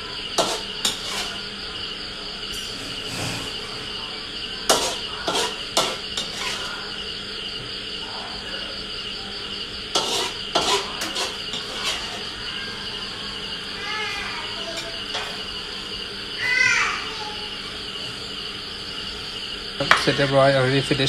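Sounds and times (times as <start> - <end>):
insects chirring: 0.0 - 21.0
metal spatula scraping a wok: 0.4 - 1.4, 2.5 - 4.0, 4.7 - 6.7, 9.9 - 12.3.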